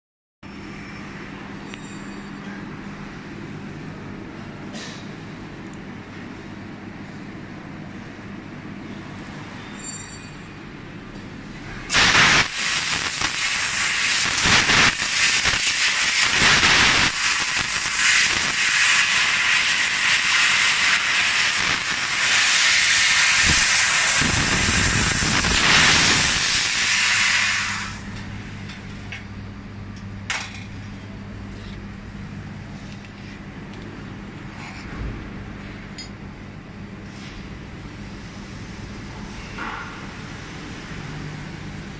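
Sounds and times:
laser cutter gas jet hissing: 11.9 - 28.2
low machine hum: 28.0 - 41.9.

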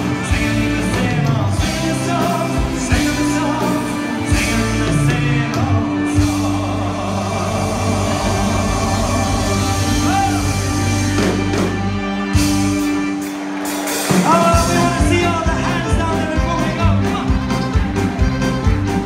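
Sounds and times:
person singing: 0.0 - 11.0
drums beating: 0.0 - 19.0
live band music: 0.0 - 19.0.

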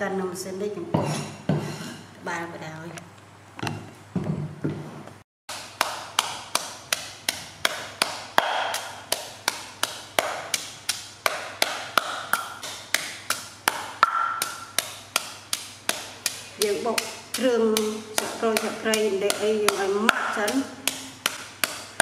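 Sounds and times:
pestle pounding in stone mortar: 5.5 - 22.0.

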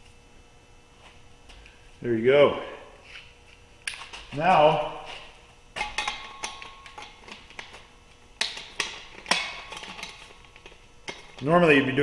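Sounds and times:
metal clinks and knocks: 5.8 - 7.8, 8.4 - 11.4.

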